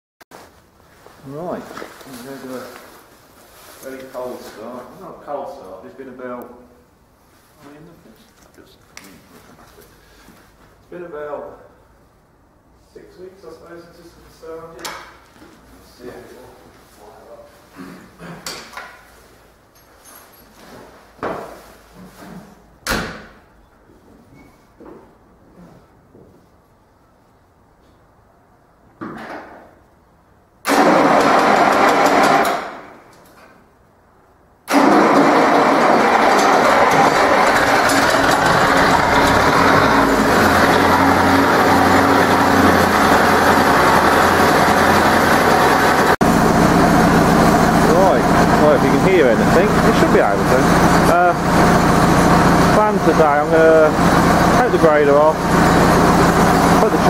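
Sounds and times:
tractor diesel engine running: 34.7 - 57.0.

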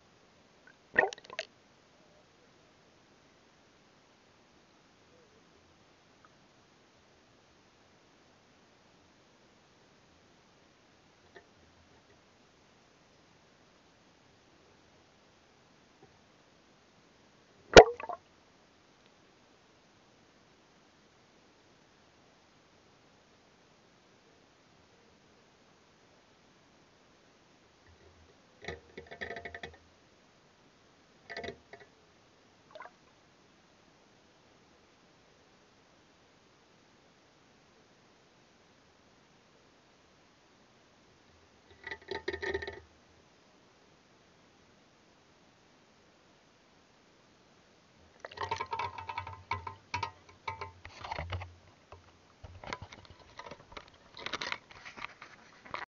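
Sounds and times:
faint hiss: 0.0 - 55.9
water splashing and dripping: 1.0 - 1.5
faint underwater hiss: 17.7 - 18.3
clicking and knocking bursts: 48.3 - 51.4.

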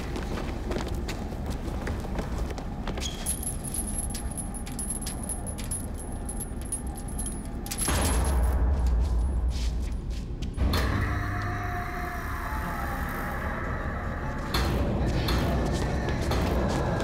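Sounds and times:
metallic clinking and rattling: 3.1 - 9.3
low rumble: 4.1 - 17.0.

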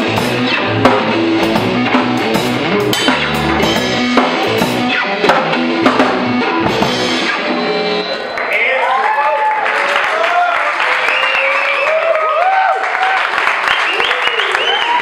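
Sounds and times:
drum kit playing: 0.0 - 8.4
band instruments holding notes: 0.0 - 9.0.

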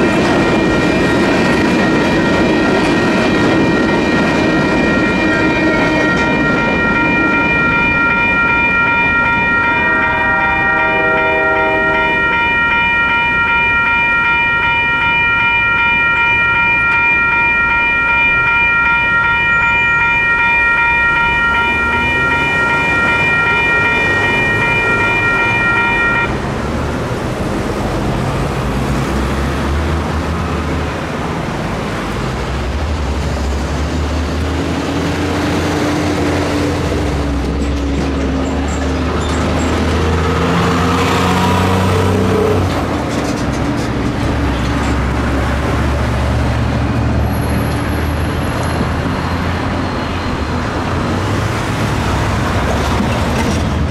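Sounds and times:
railroad crossing bell ringing: 0.0 - 53.9
cars driving over crossing: 18.2 - 53.9.

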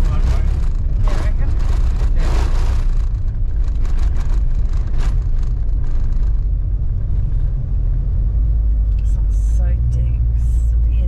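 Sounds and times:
knocks and rattles: 0.0 - 7.6
low rumble of tyres on dirt road: 0.0 - 11.0.

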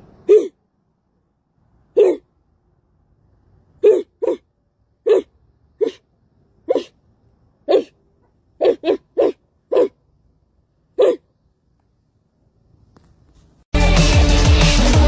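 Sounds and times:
person imitating dog barks: 0.1 - 0.6, 1.9 - 2.3, 3.8 - 4.4, 5.0 - 6.0, 6.6 - 7.0, 7.6 - 8.0, 8.6 - 10.0, 11.0 - 11.2.

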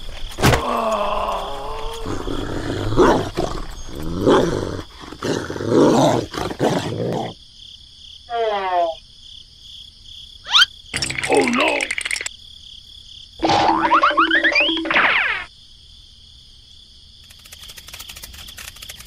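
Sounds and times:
dog growling and barking: 2.0 - 7.4
short squeaky call: 10.5 - 10.7.

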